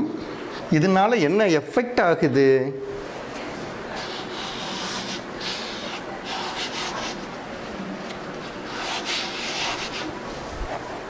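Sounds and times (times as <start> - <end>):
chalk scratching on blackboard: 3.9 - 7.2, 8.6 - 10.2.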